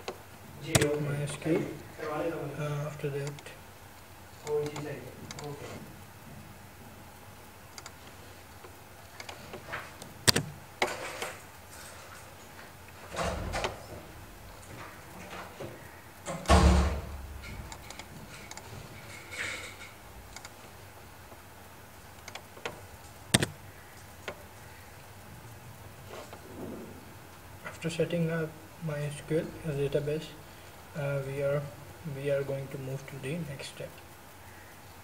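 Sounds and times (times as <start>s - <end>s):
mouse and keyboard clicks: 0.0s - 1.0s, 4.4s - 5.6s, 7.8s - 8.0s, 10.2s - 10.6s, 17.7s - 18.6s, 23.3s - 23.6s.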